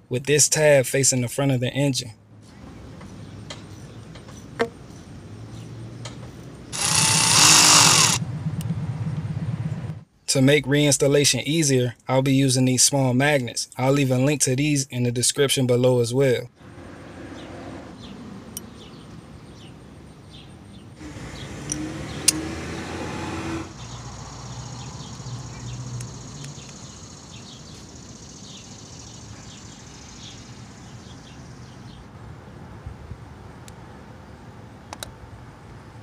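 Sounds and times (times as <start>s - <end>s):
vehicle passing: 4.9s - 10.1s, 16.6s - 19.1s, 21.0s - 28.8s
sharp click: 21.7s - 22.4s
faint bird chirps: 23.8s - 32.0s.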